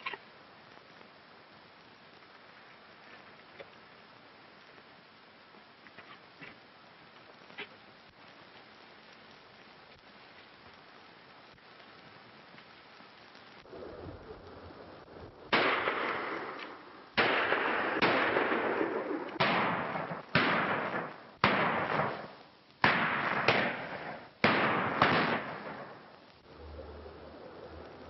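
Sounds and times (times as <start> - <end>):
pistol shots echoing: 15.5 - 16.6, 17.2 - 22.2, 22.8 - 26.0.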